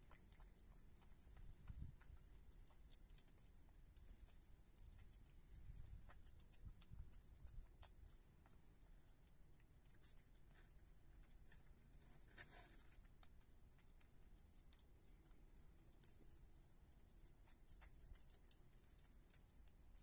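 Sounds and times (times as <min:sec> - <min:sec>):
animal chewing and smacking: 0:00.0 - 0:20.0.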